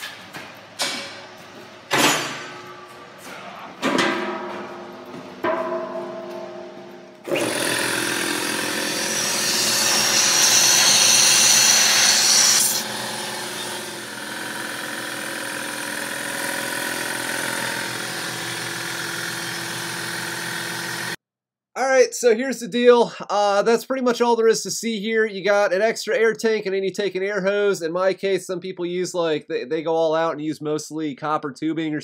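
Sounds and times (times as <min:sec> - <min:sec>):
air compressor running: 0:07.2 - 0:21.2.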